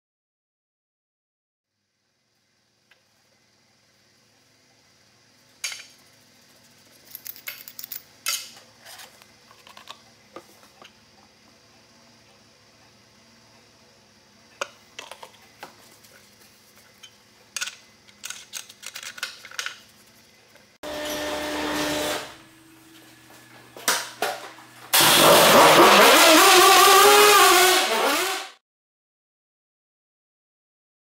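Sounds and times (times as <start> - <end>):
dirt bike engine revving: 24.9 - 28.5.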